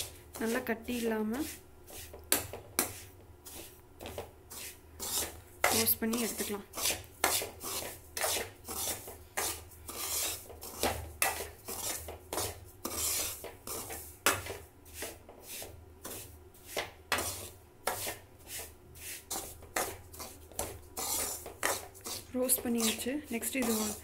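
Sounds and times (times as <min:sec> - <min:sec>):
metal spoon scraping metal pan: 0:04.5 - 0:14.0, 0:21.0 - 0:24.0.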